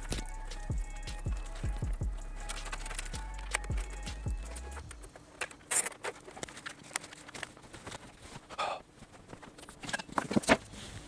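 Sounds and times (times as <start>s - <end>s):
cables clicking and rustling: 0.0s - 11.0s.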